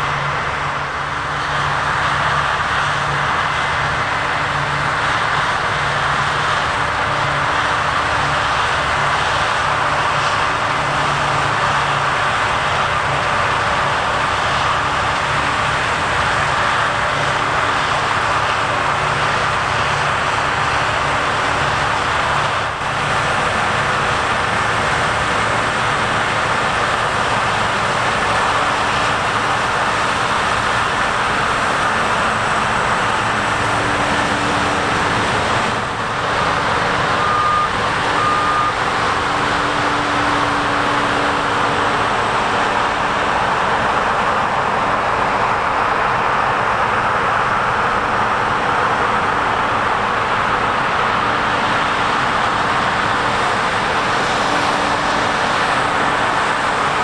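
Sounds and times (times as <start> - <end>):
combine harvester running: 0.0 - 57.0
short high beeps: 37.2 - 38.8.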